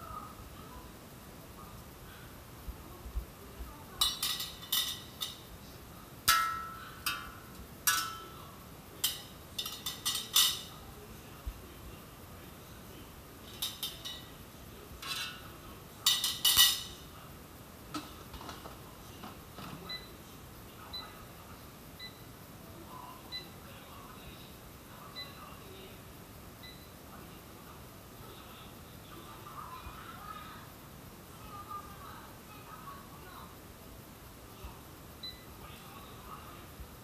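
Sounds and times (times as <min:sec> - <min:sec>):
kitchenware clattering: 0:04.0 - 0:05.5, 0:06.2 - 0:08.4, 0:09.0 - 0:10.8, 0:13.4 - 0:14.4, 0:15.0 - 0:17.0.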